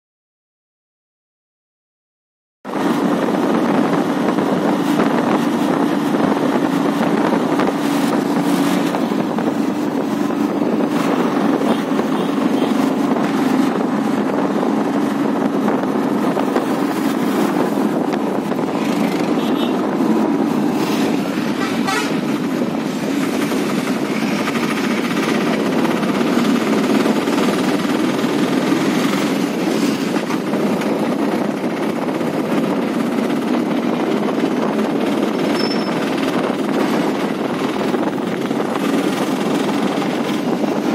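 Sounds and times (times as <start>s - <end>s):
vehicle engine and road noise: 2.7s - 40.9s
car horn toots: 19.3s - 19.8s, 21.6s - 22.3s.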